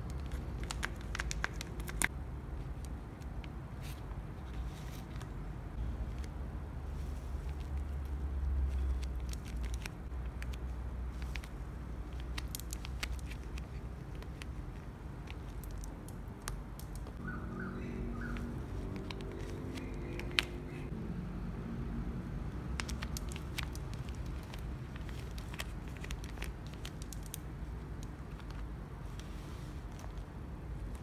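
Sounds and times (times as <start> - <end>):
paper crinkling and rustling: 0.0 - 2.1, 6.9 - 16.0, 22.8 - 31.0
sharp crackles and clicks: 22.8 - 28.6.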